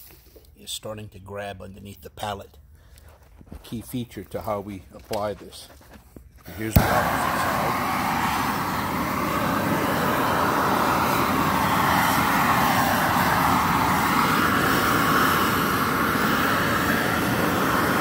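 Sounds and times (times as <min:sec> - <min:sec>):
gas heat gun burner running: 0:06.6 - 0:18.0.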